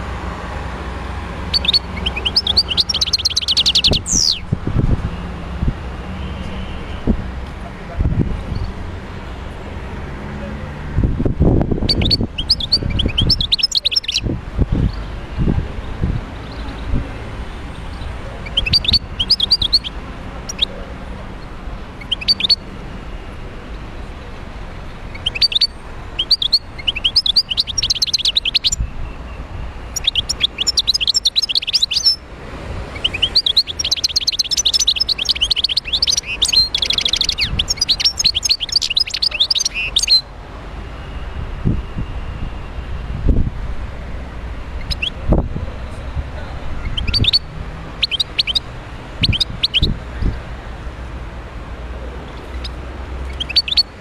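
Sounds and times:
goldfinch singing: 0:01.5 - 0:04.5, 0:11.8 - 0:14.2, 0:18.0 - 0:20.7, 0:21.4 - 0:22.6, 0:25.0 - 0:28.9, 0:29.8 - 0:32.2, 0:33.0 - 0:40.3, 0:44.8 - 0:45.2, 0:46.8 - 0:50.3, 0:52.3 - 0:54.0.

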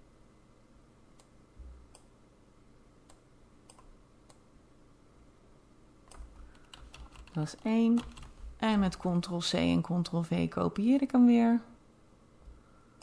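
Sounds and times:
computer mouse clicks: 0:01.2 - 0:02.1, 0:03.0 - 0:04.4.

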